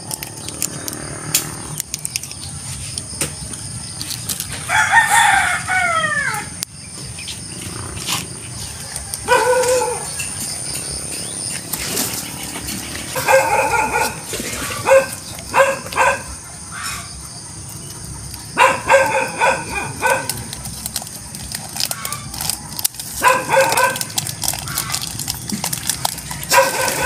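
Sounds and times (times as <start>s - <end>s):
dog barking high-pitched yaps: 9.2s - 10.1s, 13.2s - 16.3s, 18.6s - 20.4s, 23.2s - 24.1s, 26.5s - 27.0s.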